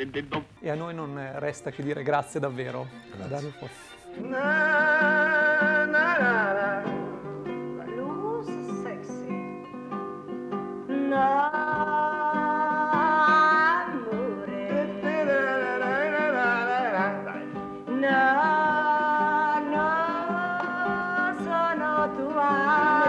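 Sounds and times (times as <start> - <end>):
acoustic guitar: 0.0 - 23.0
woman singing: 4.2 - 9.5, 10.9 - 23.0.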